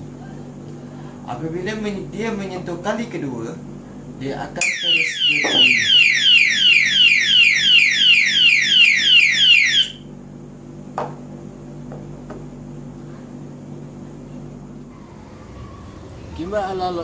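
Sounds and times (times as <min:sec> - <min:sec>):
electronic alarm siren: 0:04.6 - 0:10.1.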